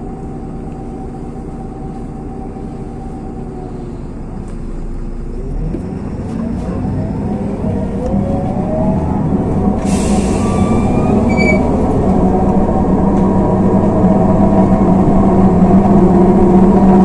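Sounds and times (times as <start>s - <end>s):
bus engine and drivetrain hum: 0.0s - 17.0s
air hiss: 9.8s - 11.0s.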